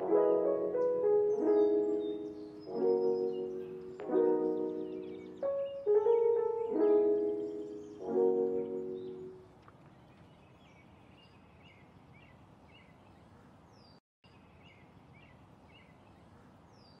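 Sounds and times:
piano chord ringing: 0:00.0 - 0:09.4
small birds chirping: 0:00.0 - 0:17.0.

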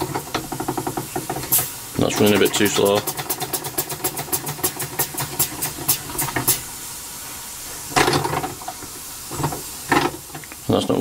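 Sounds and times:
steady hiss of steam: 0:00.0 - 0:11.0
steam engine exhaust beats: 0:00.0 - 0:11.0.

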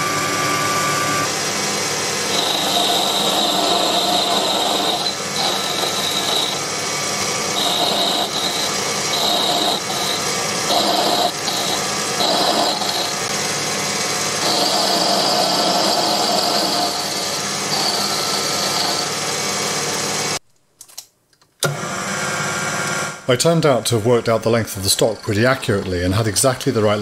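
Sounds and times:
high whine of metal cutting: 0:00.0 - 0:20.4, 0:23.8 - 0:27.0
lathe running: 0:00.0 - 0:20.4, 0:23.8 - 0:27.0.

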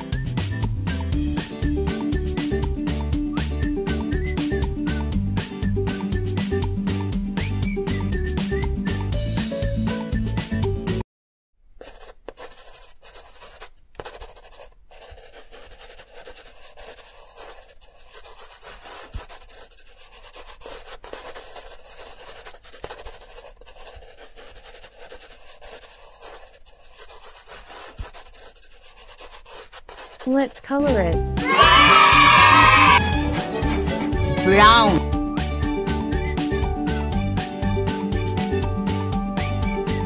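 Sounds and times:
music: 0:00.0 - 0:11.0, 0:30.8 - 0:40.0
marker scratching on paper: 0:11.8 - 0:31.0.

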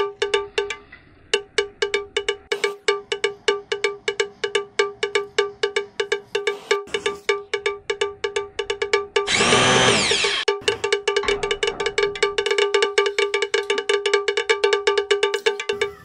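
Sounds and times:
kitchen mixer grinder running: 0:09.3 - 0:10.5.

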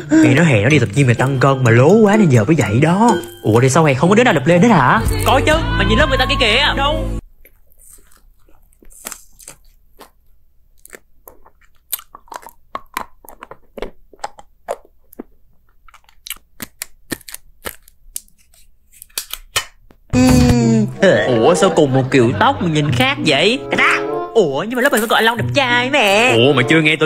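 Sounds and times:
music: 0:00.0 - 0:07.2, 0:20.2 - 0:27.0
person speaking: 0:00.0 - 0:07.2, 0:20.1 - 0:27.0
crunching chocolate candies: 0:03.1 - 0:03.8, 0:05.0 - 0:05.5, 0:07.3 - 0:19.5, 0:24.8 - 0:25.4.

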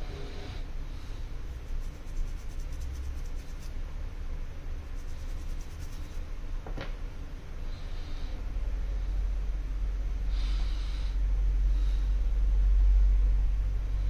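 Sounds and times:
steady low hum: 0:00.0 - 0:14.0
scratchy brushing and handling: 0:01.0 - 0:03.8, 0:04.8 - 0:06.3.

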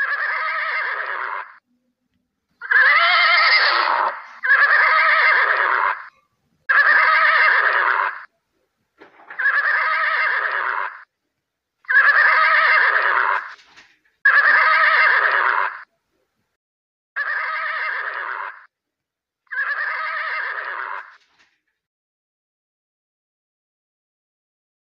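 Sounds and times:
horse whinnying: 0:00.0 - 0:01.6, 0:02.6 - 0:06.1, 0:06.7 - 0:08.3, 0:09.2 - 0:11.1, 0:11.8 - 0:13.6, 0:14.2 - 0:15.9, 0:17.2 - 0:18.7, 0:19.5 - 0:21.2.

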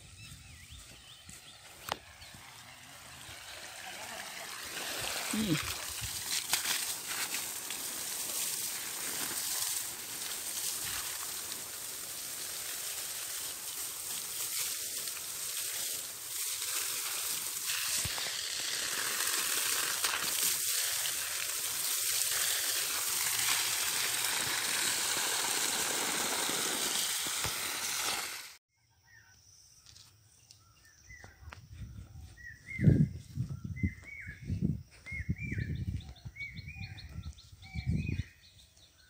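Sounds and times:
steady hiss: 0:01.3 - 0:28.6.

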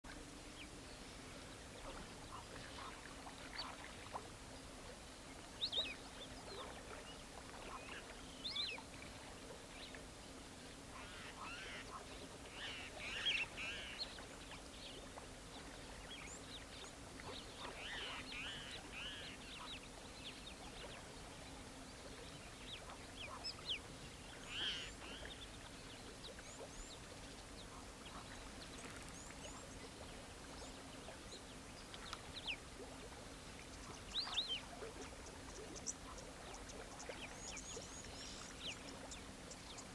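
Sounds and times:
faint low hum: 0:00.1 - 0:39.9
birds chirping: 0:10.7 - 0:32.7, 0:33.4 - 0:39.9.

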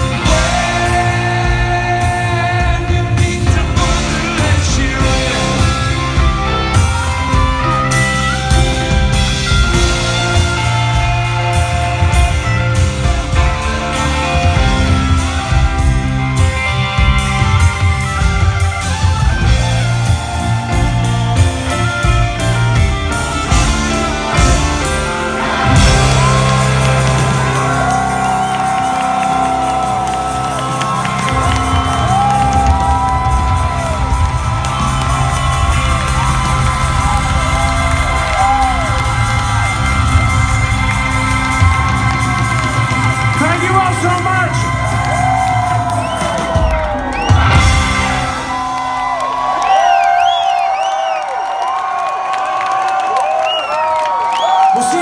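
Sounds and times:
live rock band sustained chords: 0:00.0 - 0:51.8
crowd cheering and whooping: 0:04.2 - 0:55.0
whoops and whistles: 0:49.6 - 0:51.8, 0:53.0 - 0:54.8.

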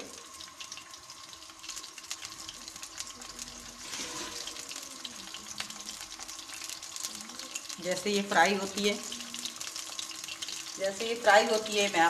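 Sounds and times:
fish sizzling in hot oil: 0:00.0 - 0:12.0.

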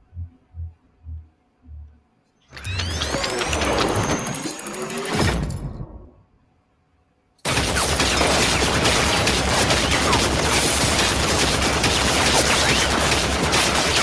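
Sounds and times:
machine-gun fire: 0:07.4 - 0:14.0.

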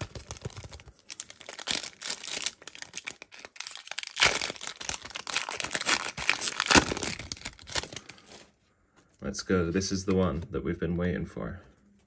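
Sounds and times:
wrapper ripping: 0:00.0 - 0:08.5
foil wrapper crinkling: 0:00.0 - 0:08.6.

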